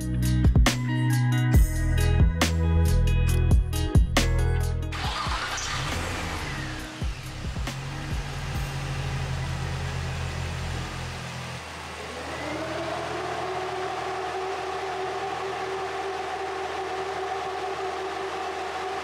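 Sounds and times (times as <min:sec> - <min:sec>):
car engine droning: 0:04.9 - 0:19.0
radiator fans whining: 0:05.0 - 0:19.0.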